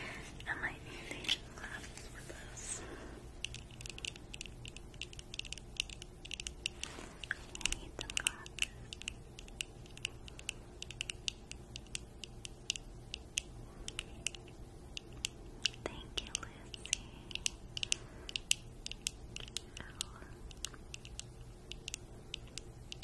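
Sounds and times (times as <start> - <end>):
soft whisper: 0.0 - 3.3, 6.7 - 9.2, 15.6 - 18.0, 19.4 - 20.8
crisp clicks and crackles: 3.4 - 23.0.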